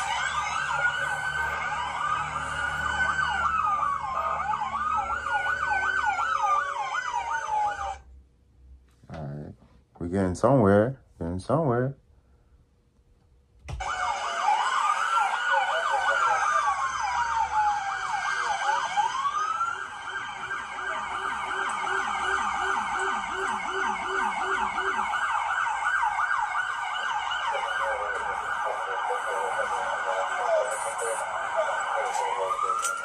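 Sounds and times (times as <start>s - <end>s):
police siren wail: 0.0s - 8.0s, 13.8s - 33.0s
police siren yelping sweeps: 0.0s - 8.0s, 13.8s - 33.0s.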